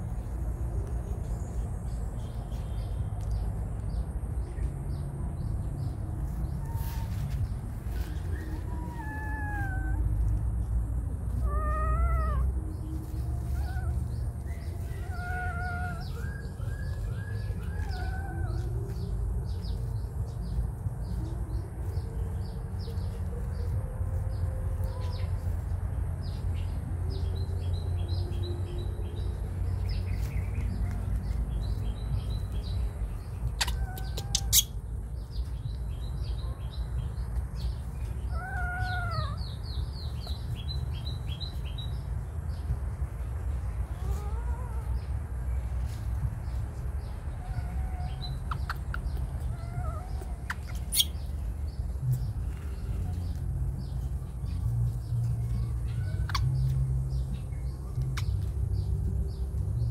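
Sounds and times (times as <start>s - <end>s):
small birds chirping: 0.0s - 59.9s
steady low rumble: 0.0s - 59.9s
young animal high-pitched cries: 6.3s - 19.3s, 33.2s - 35.2s, 37.9s - 40.5s, 43.8s - 46.0s, 47.0s - 51.6s, 52.7s - 57.4s.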